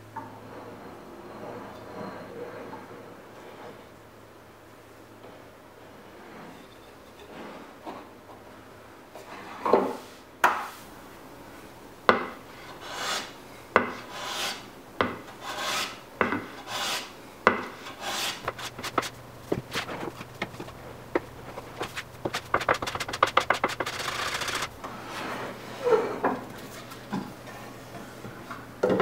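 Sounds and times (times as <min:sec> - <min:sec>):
hand tool rasping across wood: 0:12.6 - 0:14.7, 0:15.3 - 0:24.7.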